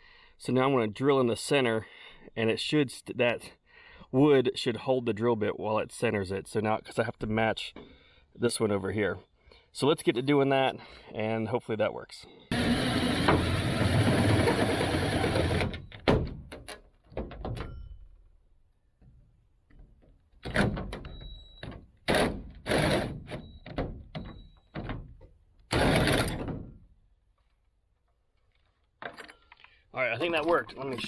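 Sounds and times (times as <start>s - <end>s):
power drill cutting metal siding: 12.5s - 16.1s, 22.0s - 23.8s, 25.7s - 26.5s.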